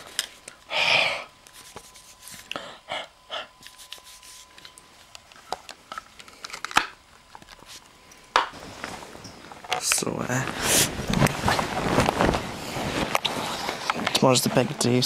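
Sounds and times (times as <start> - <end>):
bedclothes rustling: 8.6 - 14.6.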